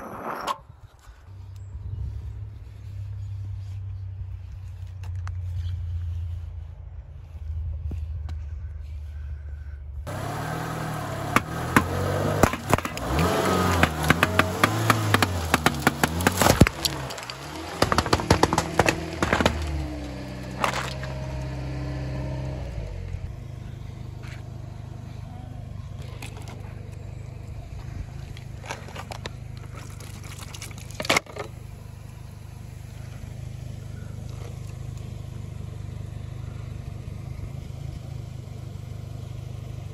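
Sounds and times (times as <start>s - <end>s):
car engine idling: 2.6s - 39.9s
tyre crushing cans: 11.3s - 21.2s
cans crinkling: 28.4s - 31.6s.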